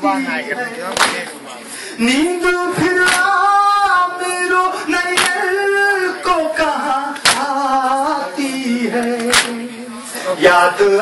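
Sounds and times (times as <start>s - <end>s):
mourners chanting a lament: 0.0s - 11.0s
hand slaps on chest: 5.2s - 5.4s, 7.2s - 7.5s, 9.2s - 9.6s.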